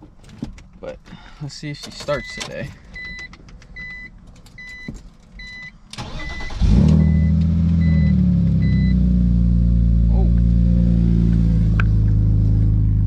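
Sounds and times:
car engine cranking and idling: 0:00.0 - 0:13.0
car electronic chimes: 0:02.0 - 0:09.0.

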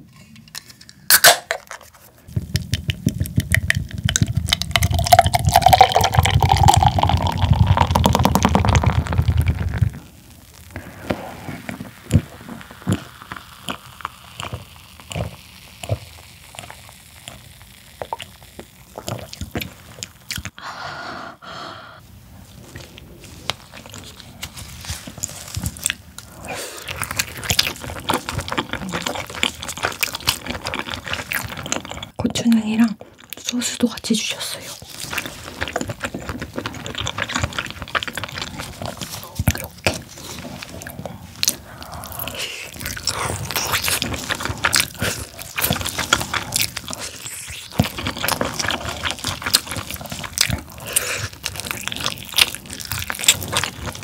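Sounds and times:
person chewing: 0:01.2 - 0:20.6, 0:22.5 - 0:32.2, 0:34.8 - 0:54.0
person gulping: 0:02.6 - 0:20.6, 0:25.9 - 0:32.2, 0:35.0 - 0:54.0
beer pouring into glass: 0:04.5 - 0:09.2.

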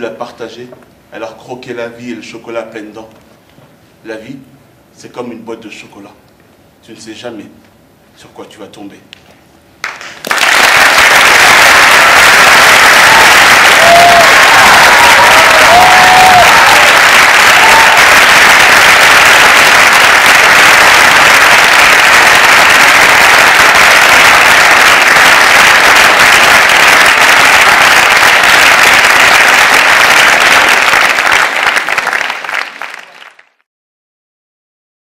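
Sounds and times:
audience applauding: 0:09.8 - 0:33.7.

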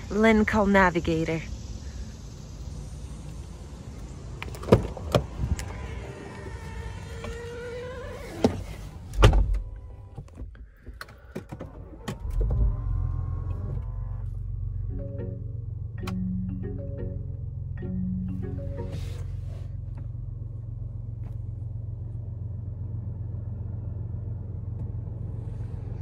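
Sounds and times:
car engine humming: 0:00.0 - 0:26.0
electric motor whining: 0:05.3 - 0:08.8, 0:12.2 - 0:16.5
heavy car door slam: 0:09.2 - 0:09.8.

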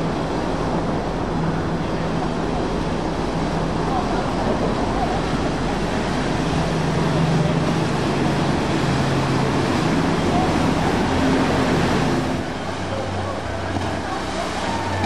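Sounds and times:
jet boat engine hum: 0:00.0 - 0:15.0
wake rushing: 0:00.0 - 0:15.0.

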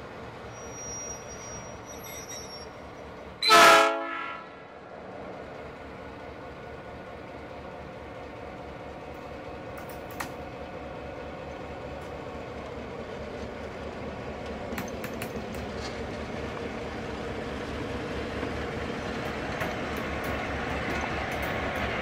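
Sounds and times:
wheels clicking on track: 0:05.9 - 0:22.0.

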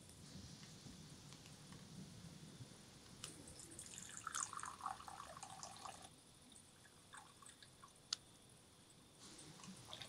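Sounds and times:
tea trickling into cup: 0:03.6 - 0:06.1.

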